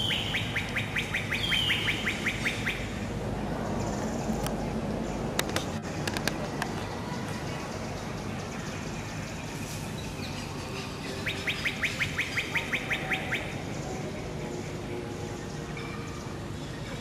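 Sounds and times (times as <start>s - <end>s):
bird calling rising notes: 0.0s - 3.0s, 11.1s - 13.6s.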